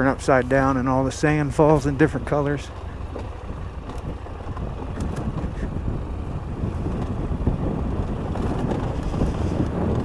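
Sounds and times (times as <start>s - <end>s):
motorcycle engine running: 0.0s - 10.0s
wind buffeting microphone: 0.0s - 10.0s.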